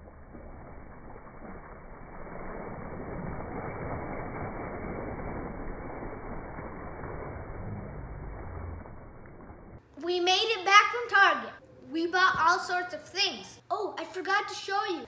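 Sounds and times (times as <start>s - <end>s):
water rushing and splashing: 0.0s - 9.8s.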